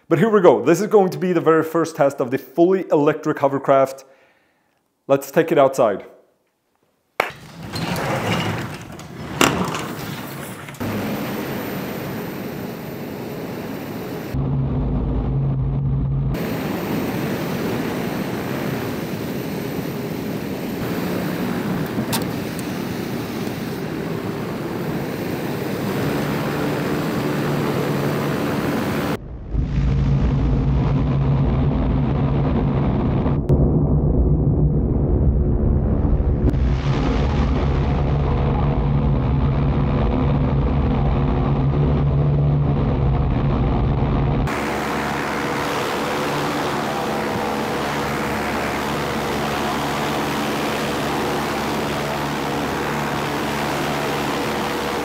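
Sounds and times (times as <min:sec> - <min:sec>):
propellers droning with rushing air: 0:09.4 - 0:29.2, 0:38.4 - 0:55.0.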